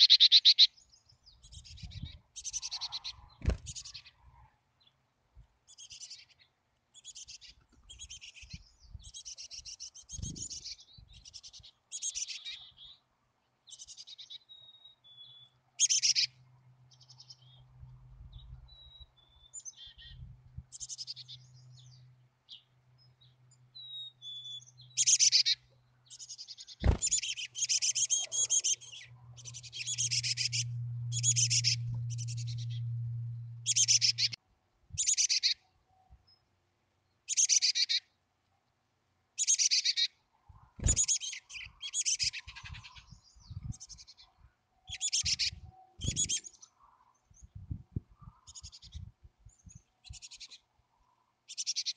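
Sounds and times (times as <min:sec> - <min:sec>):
nestlings giving buzzy begging calls: 0:00.0 - 0:00.8, 0:01.4 - 0:04.2, 0:07.0 - 0:12.7, 0:15.8 - 0:16.4, 0:19.6 - 0:21.4, 0:25.0 - 0:32.9, 0:33.6 - 0:34.4, 0:35.0 - 0:35.6, 0:37.3 - 0:38.1, 0:39.4 - 0:40.2, 0:40.8 - 0:44.3, 0:44.9 - 0:46.6
low steady hum: 0:28.8 - 0:34.4.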